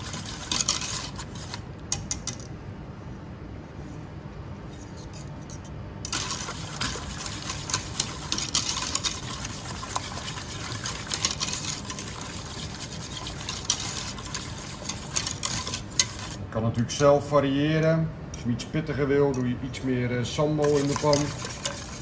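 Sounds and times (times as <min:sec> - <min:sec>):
whisk stirring thick sauce: 0:00.0 - 0:01.7, 0:06.1 - 0:16.5, 0:20.5 - 0:22.0
whisk wires scraping metal pot: 0:00.0 - 0:01.7, 0:06.1 - 0:16.6, 0:20.4 - 0:22.0.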